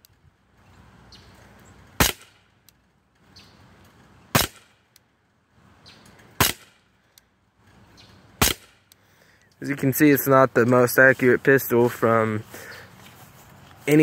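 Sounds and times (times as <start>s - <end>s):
pistol shots popping: 2.0s - 2.4s, 4.3s - 4.8s, 6.4s - 6.8s, 8.4s - 8.9s.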